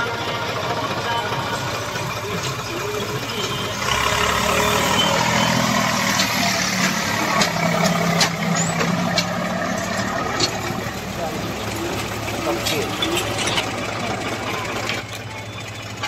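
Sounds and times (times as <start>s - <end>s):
tractor diesel engine running: 0.0s - 16.0s
sharp clicks and rattles: 4.6s - 16.0s.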